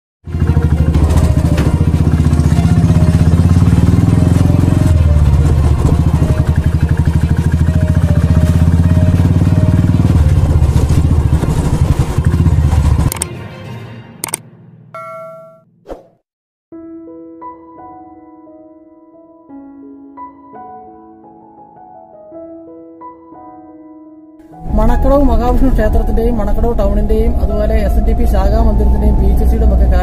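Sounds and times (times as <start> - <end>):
motorcycle engine running: 0.3 - 13.2
short sharp swish: 15.8 - 16.2.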